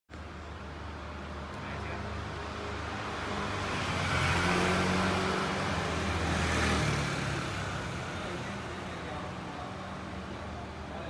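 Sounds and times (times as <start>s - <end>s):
vehicle passing: 1.9s - 10.4s.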